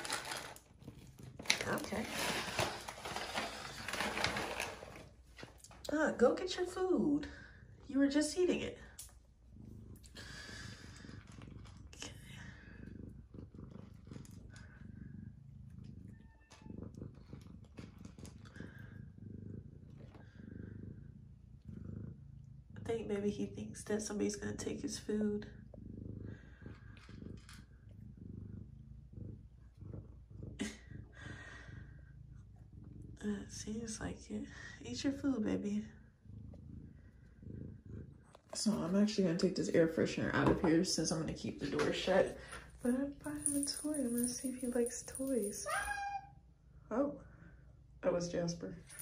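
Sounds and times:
dry kibble crunching: 0:00.0 - 0:05.0
cat purring: 0:00.0 - 0:49.0.

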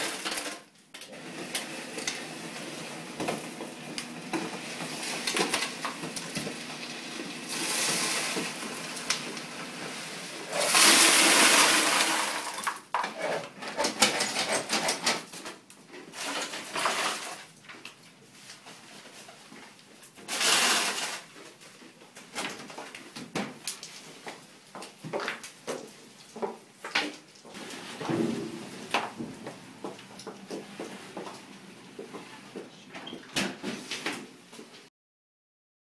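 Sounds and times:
ice cubes clattering into bucket: 0:00.0 - 0:02.4, 0:04.4 - 0:13.0, 0:16.2 - 0:17.5, 0:20.3 - 0:21.3
dispenser knocks and rattles: 0:28.0 - 0:29.6.

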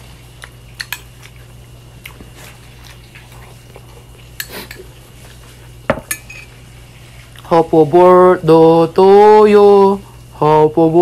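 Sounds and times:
metal spoon scraping a bowl: 0:06.0 - 0:06.5.

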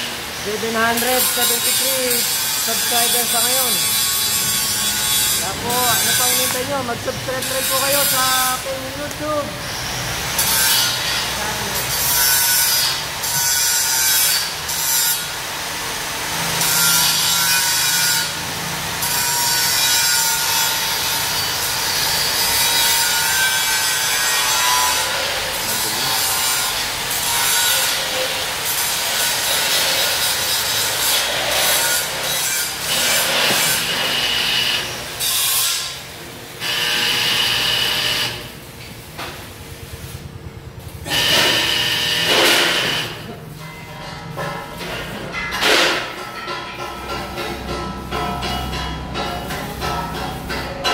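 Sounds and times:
electric grinder on steel: 0:00.0 - 0:38.6, 0:40.8 - 0:43.6.

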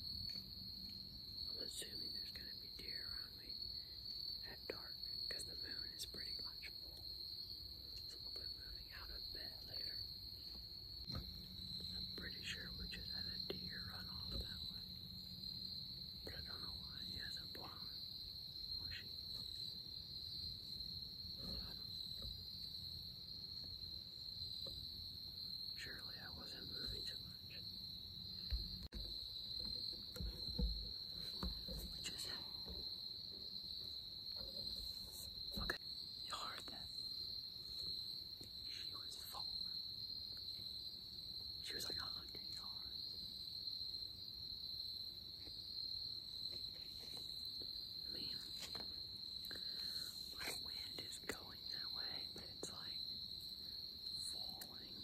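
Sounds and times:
crickets chirring: 0:00.0 - 0:55.0
faint rustles and ticks: 0:00.2 - 0:03.7, 0:04.4 - 0:07.2, 0:07.8 - 0:18.0, 0:28.4 - 0:37.0, 0:46.5 - 0:55.0
faint low rumble: 0:11.0 - 0:19.9.

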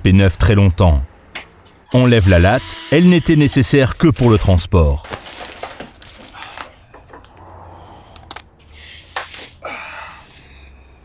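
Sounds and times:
rustling handling noises: 0:05.0 - 0:06.9.

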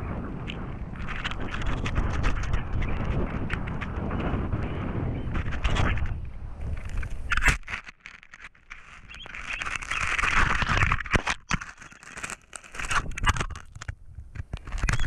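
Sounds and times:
feathers rustling against microphone: 0:05.3 - 0:13.6.

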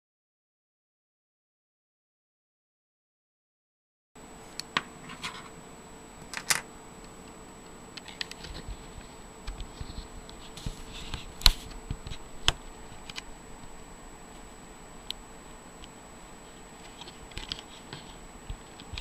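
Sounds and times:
clicks of small parts handled: 0:06.3 - 0:06.6.

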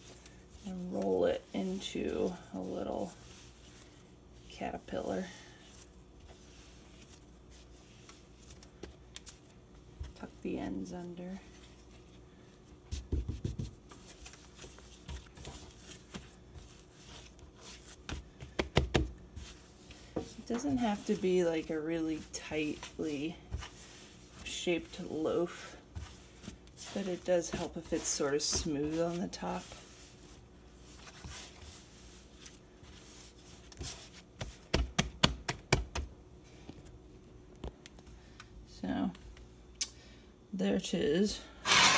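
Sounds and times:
hands rubbing dough: 0:00.0 - 0:36.1
dough knocking on counter: 0:13.0 - 0:13.8, 0:18.4 - 0:19.2.

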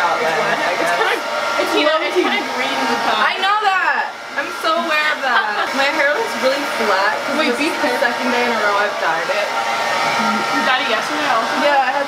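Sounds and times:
hair dryer running: 0:00.0 - 0:12.0
voices talking: 0:00.0 - 0:12.0.

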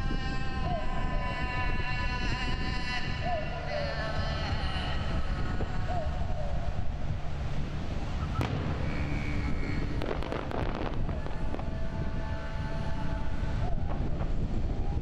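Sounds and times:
wind rumble on microphone: 0:00.0 - 0:15.0
distant firework shells bursting: 0:08.4 - 0:11.2
firework crackling: 0:08.4 - 0:12.5.

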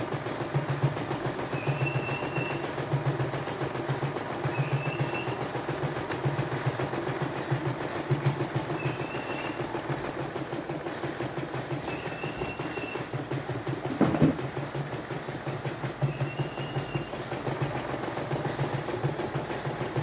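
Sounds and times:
embroidery machine stitching: 0:00.0 - 0:20.0
loud knock: 0:13.9 - 0:14.4.

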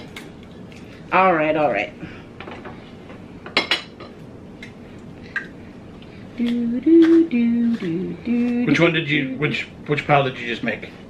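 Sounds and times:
person humming: 0:06.4 - 0:09.6.

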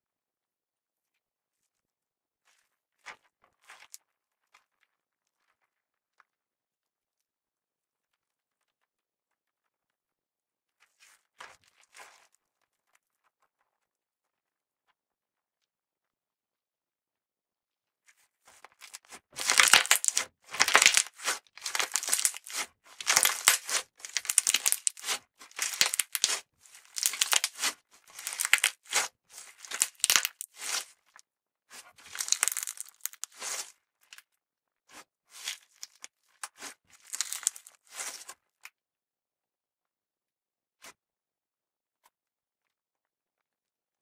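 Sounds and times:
slime squeezed by hand crackling: 0:18.8 - 0:30.9, 0:32.0 - 0:33.7, 0:35.3 - 0:38.3.

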